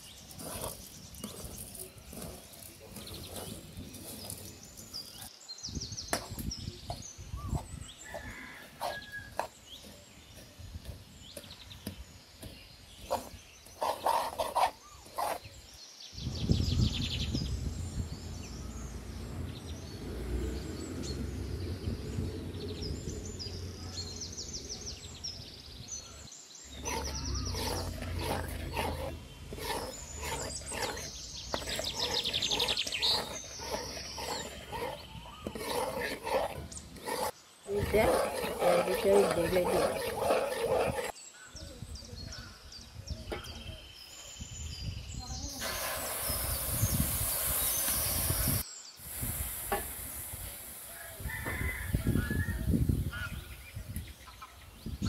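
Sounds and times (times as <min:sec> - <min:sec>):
small birds chirping: 0:00.0 - 0:49.3
metal spoon scraping in pan: 0:00.3 - 0:04.9, 0:13.0 - 0:15.4, 0:26.7 - 0:41.1.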